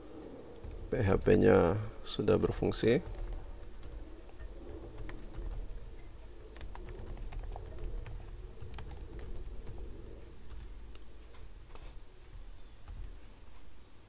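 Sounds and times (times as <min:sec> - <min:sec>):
low background hum: 0:00.0 - 0:14.0
keyboard keystroke clicks: 0:03.0 - 0:13.2.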